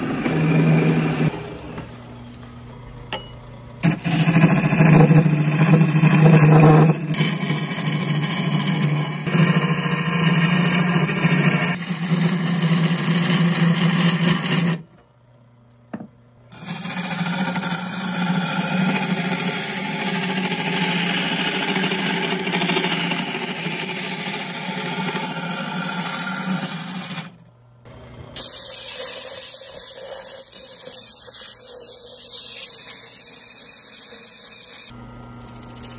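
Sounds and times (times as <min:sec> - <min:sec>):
turning tool scraping wood: 0:00.0 - 0:01.3, 0:03.8 - 0:14.8, 0:16.5 - 0:27.4
lathe hum: 0:00.0 - 0:14.8, 0:16.0 - 0:29.6
sandpaper hissing on spinning wood: 0:03.8 - 0:14.8, 0:16.6 - 0:27.3, 0:28.4 - 0:35.9.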